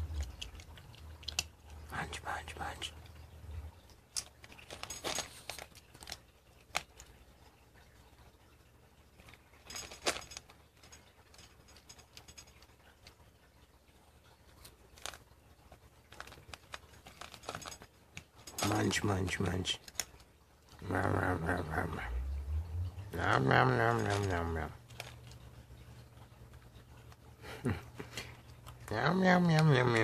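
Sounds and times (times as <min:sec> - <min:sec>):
cat crunching dry kibble: 0:00.0 - 0:03.2, 0:04.0 - 0:07.2, 0:14.5 - 0:20.9, 0:23.8 - 0:30.0.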